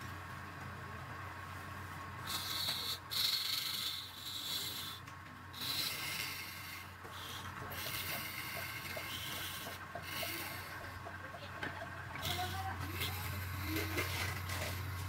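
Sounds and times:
chisel scraping spinning wood: 5.6s - 15.0s
lathe humming: 5.6s - 15.0s.

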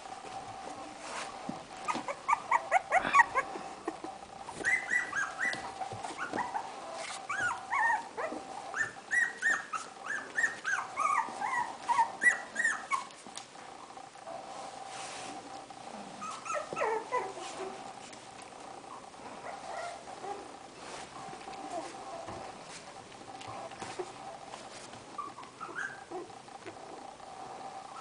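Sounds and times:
puppies whining and yelping: 1.7s - 13.3s, 16.2s - 18.0s, 18.9s - 20.5s, 23.6s - 26.4s.

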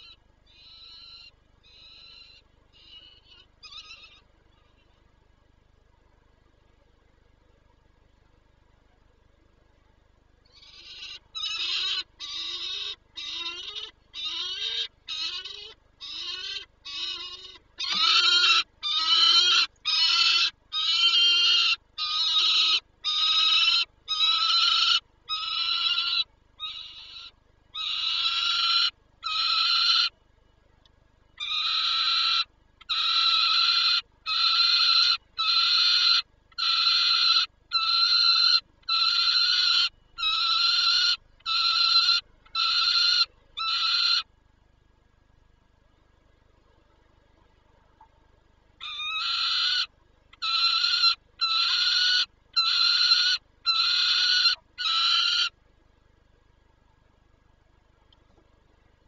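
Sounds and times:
falcon screaming: 10.6s - 30.1s, 31.4s - 44.3s, 48.8s - 55.5s.

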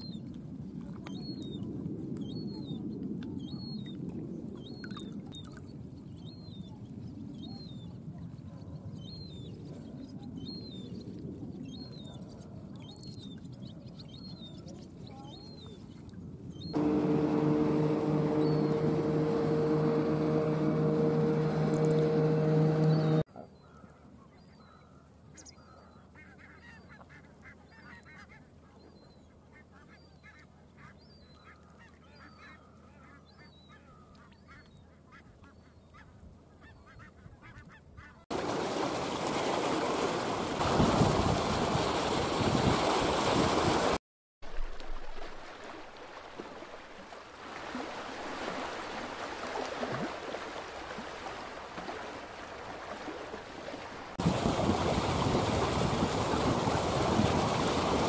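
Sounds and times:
waves at the shoreline: 16.7s - 23.3s, 38.3s - 58.0s
distant flock of birds calling: 16.7s - 23.9s.

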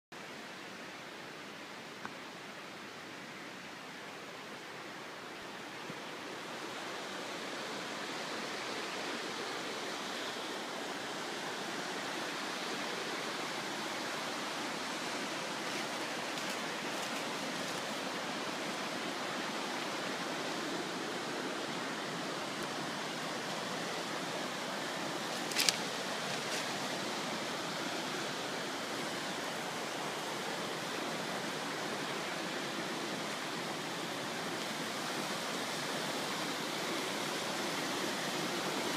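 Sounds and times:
river rapids rushing: 0.2s - 38.9s.

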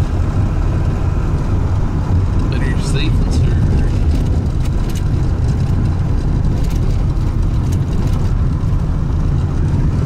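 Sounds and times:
truck engine and road rumble: 0.0s - 10.0s
light clicks and rattles: 2.3s - 9.6s.

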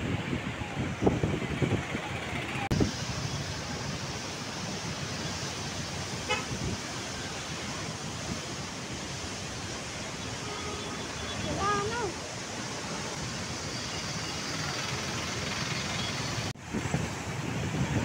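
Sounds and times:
wind buffeting microphone: 0.0s - 7.0s, 16.6s - 18.0s
floodwater rushing: 0.0s - 18.0s.

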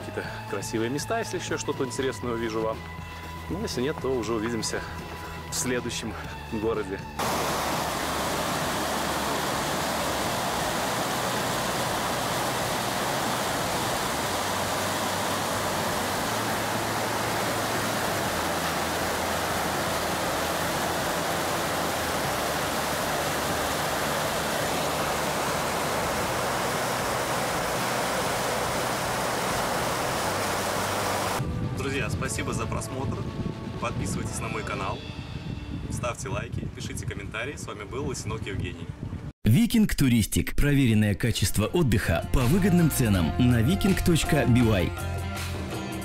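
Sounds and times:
stream rushing over boulders: 7.2s - 31.4s.

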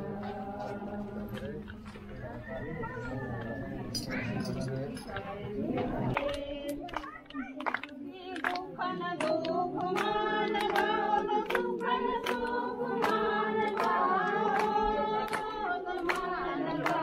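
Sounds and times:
crowd singing a hymn: 0.0s - 17.0s
sharp hand claps: 6.1s - 17.0s.

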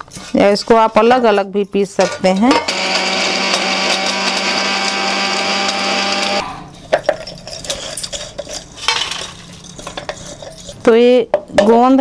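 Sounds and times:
electric mixer grinder running: 2.6s - 6.4s
metal clinks and scrapes: 6.8s - 11.0s.

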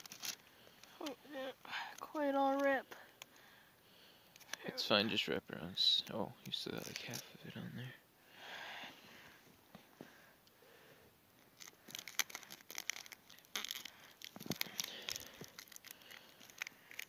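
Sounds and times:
adhesive tag crinkling: 0.0s - 3.4s, 6.0s - 7.3s, 11.4s - 17.0s.

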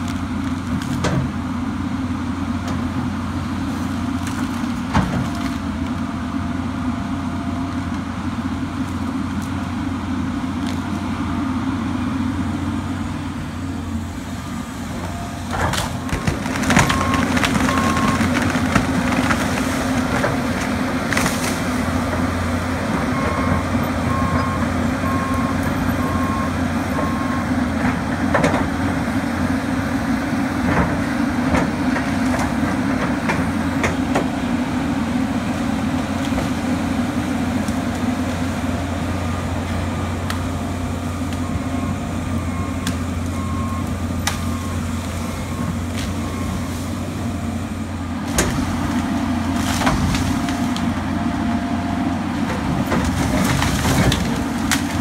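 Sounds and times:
diesel engine running: 0.0s - 55.0s
wood cracking: 15.4s - 22.2s, 48.2s - 51.1s, 52.4s - 55.0s.

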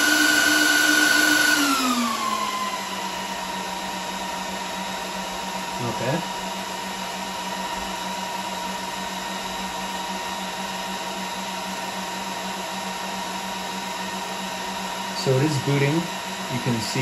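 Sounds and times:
cooling fans whirring: 0.0s - 17.0s.

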